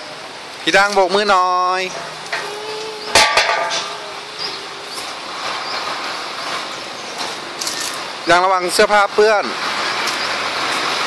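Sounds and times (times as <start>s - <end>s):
metal seesaw knocking: 3.1s - 4.1s.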